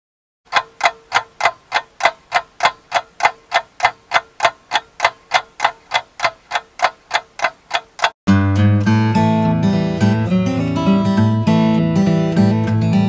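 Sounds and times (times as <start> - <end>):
mechanical ticking: 0.5 - 8.2.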